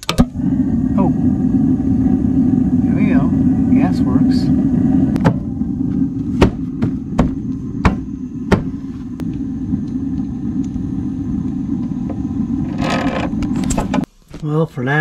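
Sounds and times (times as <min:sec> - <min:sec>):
sharp igniter clicks: 0:00.0 - 0:00.4, 0:09.2 - 0:14.6
gas burner rumbling: 0:00.0 - 0:15.0.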